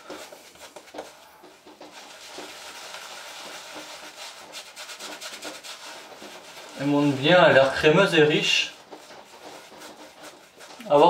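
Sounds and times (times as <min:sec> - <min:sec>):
shaving brush swishing on face: 0:00.0 - 0:11.0.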